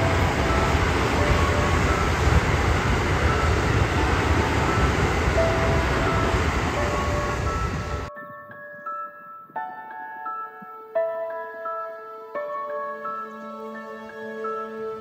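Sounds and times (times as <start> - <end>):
train wheels rumbling on rails: 0.0 - 8.1
faint bell-like music notes: 0.0 - 15.0.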